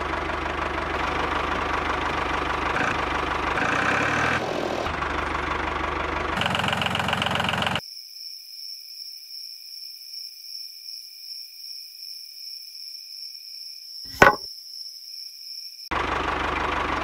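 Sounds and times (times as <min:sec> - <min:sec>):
battery pack knocking on wood: 0:14.1 - 0:14.4.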